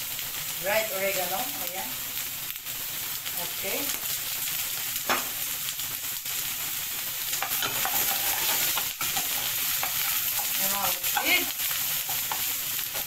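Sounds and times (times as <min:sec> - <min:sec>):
vegetables sizzling in a pan: 0:00.0 - 0:13.0
spatula scraping a pan: 0:07.3 - 0:13.0.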